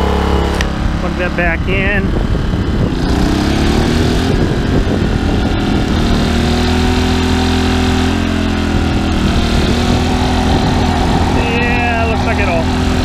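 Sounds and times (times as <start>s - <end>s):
small generator engine running: 0.0s - 13.0s.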